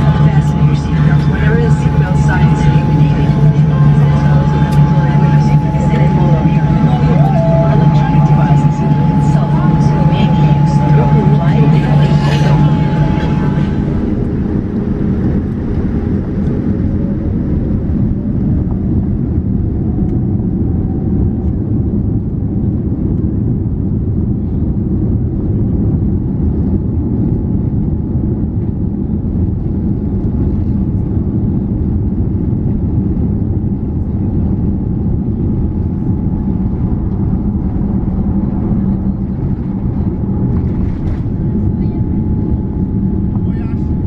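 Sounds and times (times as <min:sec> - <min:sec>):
airliner cabin rumble: 0:00.0 - 0:44.0
faint rising tone: 0:01.4 - 0:14.5.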